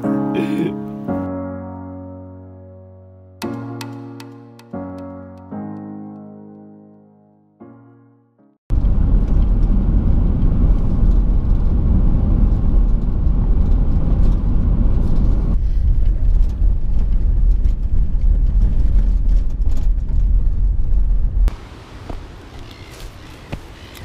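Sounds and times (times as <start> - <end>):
wind buffeting camera: 8.7 - 21.5
road and tyre noise: 8.7 - 24.0.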